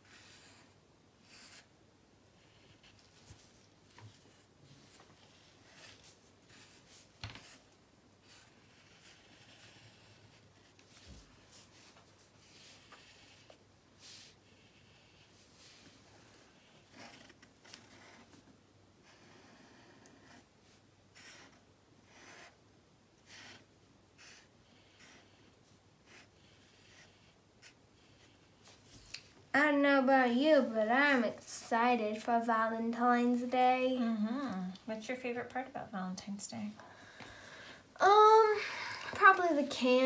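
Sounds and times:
markers scratching on paper: 0:00.0 - 0:01.7, 0:02.4 - 0:18.4, 0:23.2 - 0:28.8.

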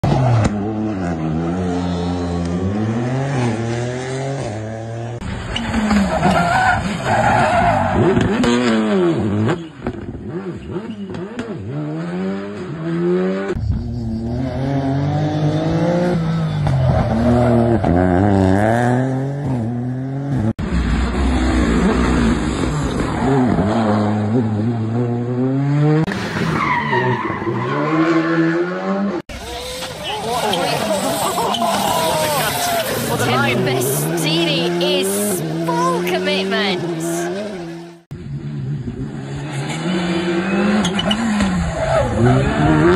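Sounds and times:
rally car engines revving: 0:00.0 - 0:42.9
tyres skidding: 0:05.2 - 0:13.0, 0:25.9 - 0:38.0, 0:39.0 - 0:42.9.

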